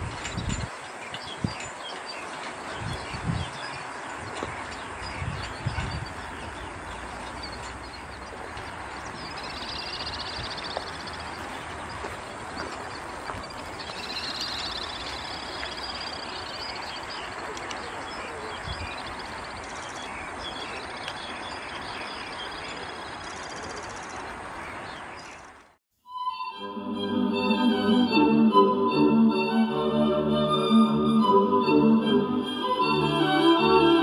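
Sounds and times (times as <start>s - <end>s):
high fast trilling calls: 13.4s - 17.4s.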